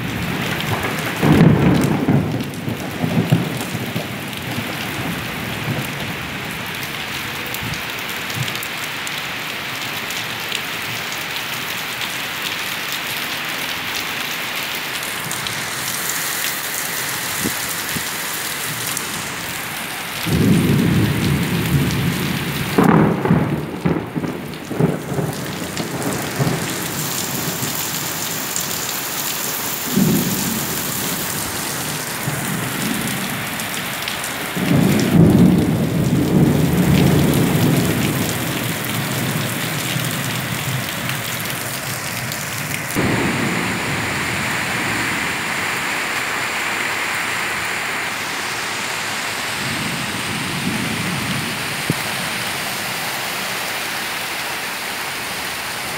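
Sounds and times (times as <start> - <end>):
thunder rumbling: 0.0 - 8.5, 16.8 - 28.8, 29.6 - 46.6, 49.1 - 52.6
heavy rain pouring: 0.0 - 55.9.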